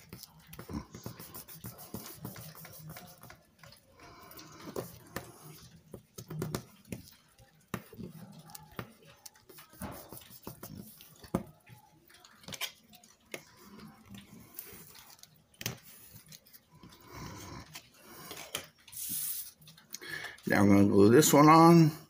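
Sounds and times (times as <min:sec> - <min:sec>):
paper rustling and rubbing: 0:00.0 - 0:03.4, 0:08.0 - 0:11.4.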